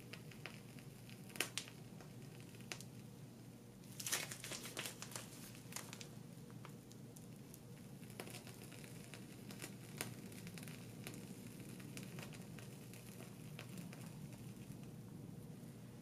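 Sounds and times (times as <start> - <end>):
plastic piping bag crinkling: 0.0 - 3.0, 3.8 - 15.0
low steady hum: 0.0 - 16.0.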